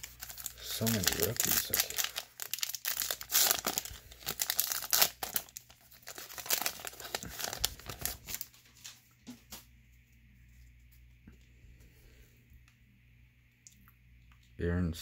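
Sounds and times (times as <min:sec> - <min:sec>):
foil wrapper tearing and crinkling: 0:00.0 - 0:09.0.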